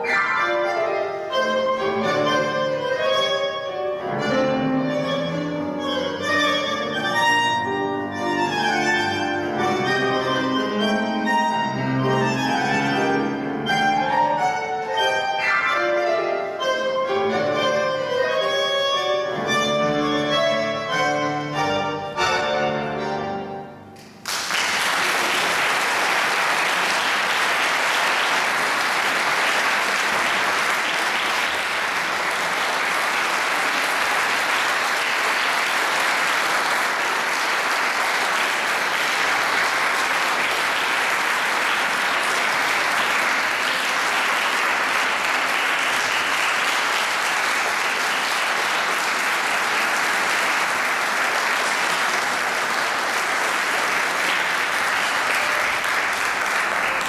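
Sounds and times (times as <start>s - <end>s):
audience applauding: 24.0s - 57.0s.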